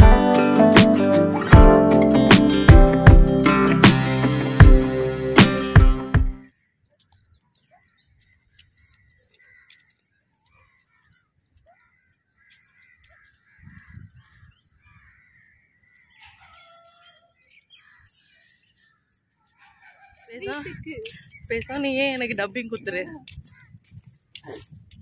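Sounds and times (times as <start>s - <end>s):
faint birdsong chirps: 6.4s - 20.3s
crows cawing: 9.3s - 10.8s, 12.3s - 18.2s.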